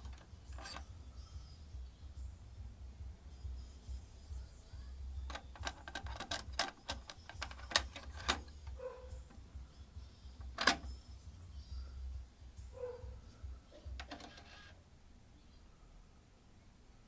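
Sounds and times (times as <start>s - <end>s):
cassette plastic clicks and rattles: 0.0s - 0.9s, 5.3s - 9.4s, 10.4s - 10.9s, 13.9s - 14.6s
faint low hum: 0.0s - 17.0s
cassette door snapping shut: 10.5s - 10.9s.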